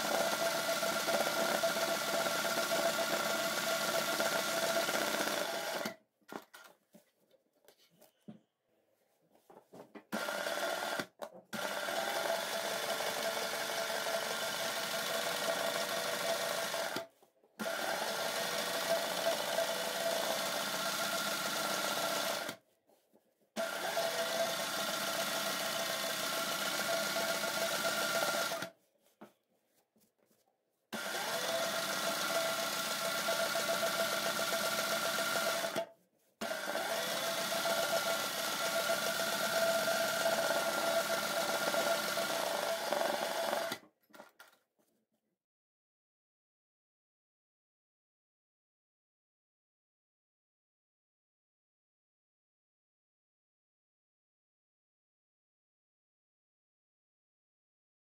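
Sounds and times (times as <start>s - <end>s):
sewing machine stitching: 0.0s - 6.0s, 10.1s - 22.6s, 23.6s - 28.7s, 31.0s - 44.4s.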